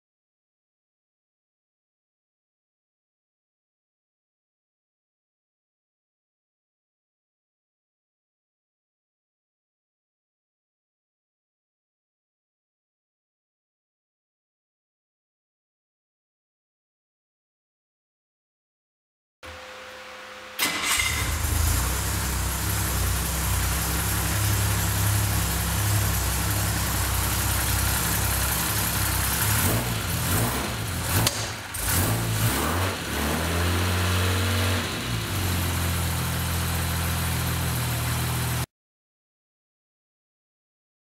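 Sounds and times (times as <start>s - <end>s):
car engine revving: 19.5s - 38.6s
car engine starting and idling: 19.5s - 38.7s.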